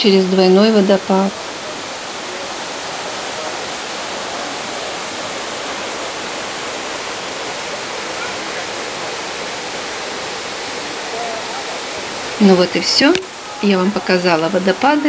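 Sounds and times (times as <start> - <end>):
waterfall rushing over rocks: 0.0 - 15.0.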